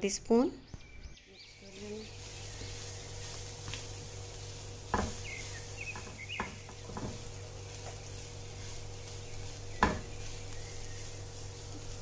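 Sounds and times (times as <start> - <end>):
bird chirping: 0.2 - 4.1, 4.9 - 7.1, 8.1 - 12.0
utensil knocking against pan: 4.9 - 5.2, 9.8 - 10.1.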